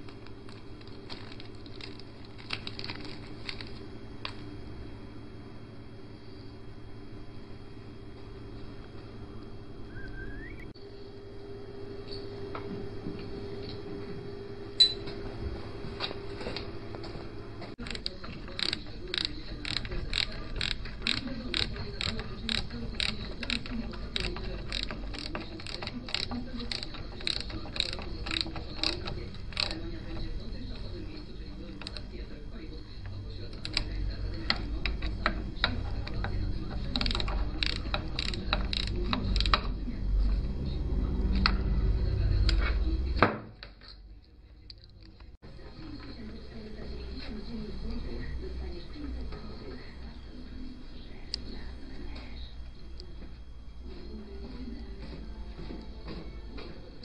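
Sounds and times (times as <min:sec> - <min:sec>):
steady hum: 0:00.0 - 0:57.0
ratchet wrench clicking: 0:17.8 - 0:30.2, 0:33.5 - 0:39.8.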